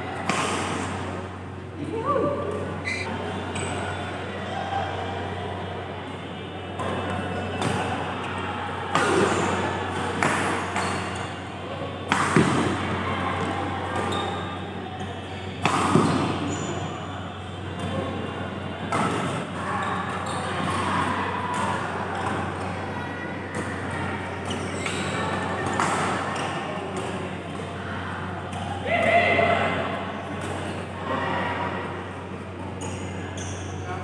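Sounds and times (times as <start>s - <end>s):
background chatter: 0.0s - 34.0s
rackets hitting shuttlecock: 8.9s - 11.4s, 12.1s - 12.9s, 15.6s - 16.5s.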